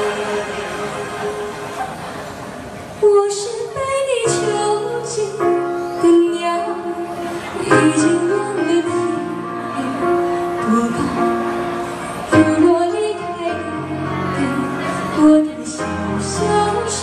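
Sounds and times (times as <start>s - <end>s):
woman singing pop ballad: 12.3s - 17.0s.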